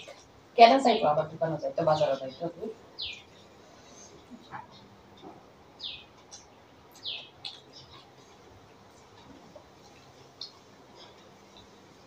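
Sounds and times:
faint bird chirps: 0:05.8 - 0:08.1.

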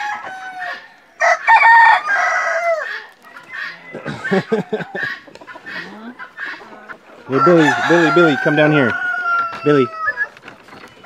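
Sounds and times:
rooster crowing: 0:00.0 - 0:03.0, 0:07.3 - 0:10.3
chickens clucking: 0:00.0 - 0:11.0.

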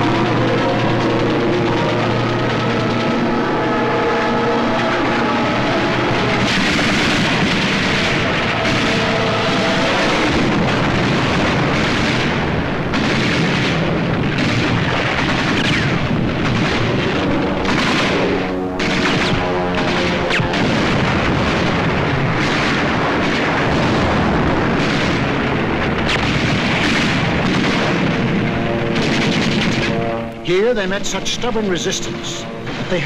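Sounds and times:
orchestral music: 0:00.0 - 0:10.8, 0:29.8 - 0:33.0
explosions and gunfire: 0:00.0 - 0:33.0
sharp gunshots or blasts: 0:00.0 - 0:33.0.

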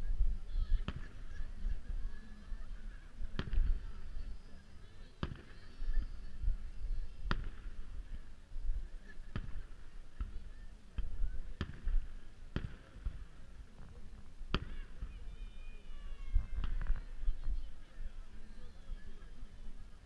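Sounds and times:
fireworks bursting: 0:02.8 - 0:18.5.

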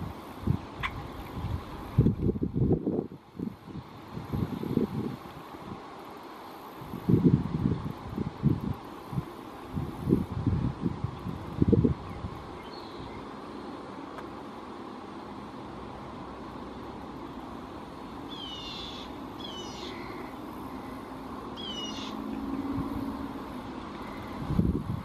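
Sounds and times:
steady outdoor hiss: 0:00.0 - 0:25.0
bird calls high and downward: 0:18.3 - 0:20.4, 0:21.6 - 0:22.2.

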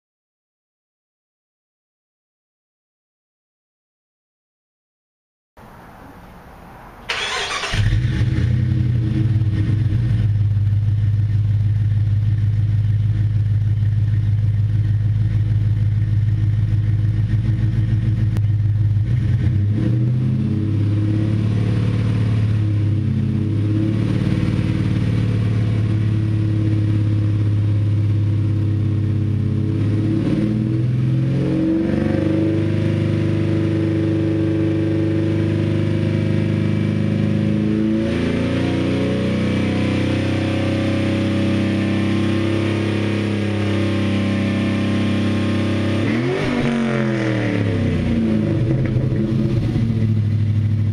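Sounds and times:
car engine starting and idling: 0:05.6 - 0:31.1, 0:45.9 - 0:50.9
engine revving higher: 0:07.0 - 0:10.3, 0:19.0 - 0:27.8, 0:28.4 - 0:50.3.

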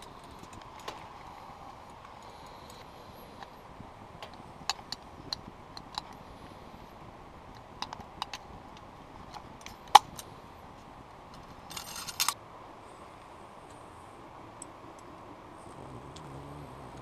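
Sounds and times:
metallic clinks of lantern chain: 0:11.7 - 0:12.4.

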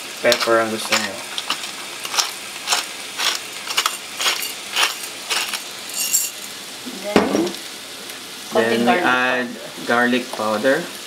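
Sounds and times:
pepper grinder clicking: 0:00.3 - 0:05.7.

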